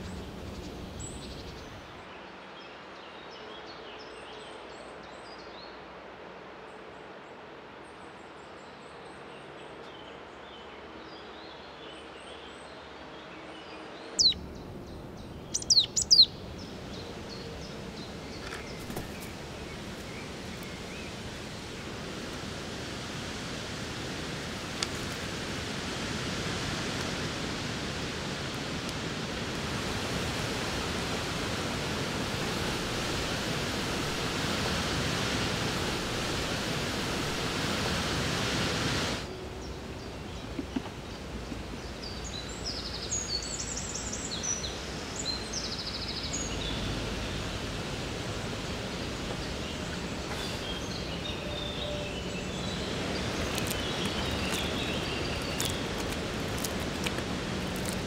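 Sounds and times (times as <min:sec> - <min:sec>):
small birds trilling and chirping: 0:00.0 - 0:05.7, 0:08.6 - 0:22.2, 0:39.6 - 0:58.0
steady rushing noise: 0:14.3 - 0:40.2, 0:52.2 - 0:58.0.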